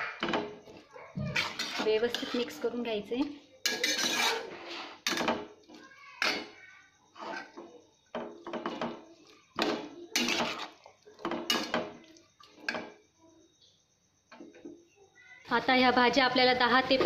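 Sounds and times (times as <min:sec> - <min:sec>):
spatula scraping metal pan: 0:00.1 - 0:02.8, 0:03.6 - 0:12.0.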